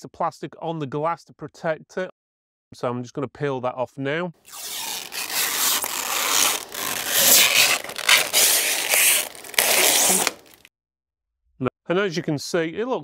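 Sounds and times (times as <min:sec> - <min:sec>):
plastic film peeling off glass: 0:04.5 - 0:10.7.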